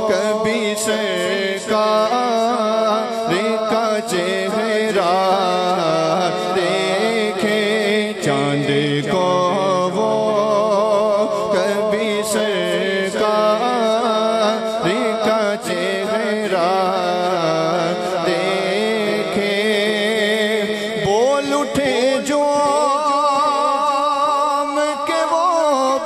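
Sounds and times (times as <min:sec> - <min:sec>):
low vocal drone: 0:00.0 - 0:22.1
man singing into a microphone: 0:00.0 - 0:26.0.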